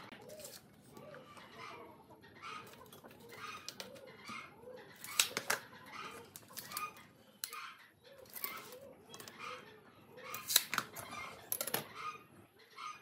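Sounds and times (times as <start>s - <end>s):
bird cooing: 0.0s - 7.0s, 8.0s - 10.4s.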